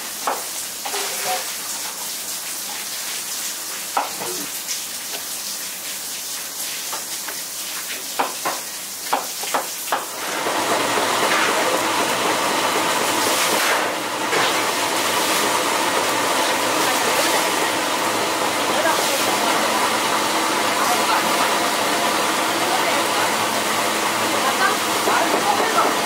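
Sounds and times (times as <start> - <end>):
pancakes sizzling in oil: 0.0 - 10.2.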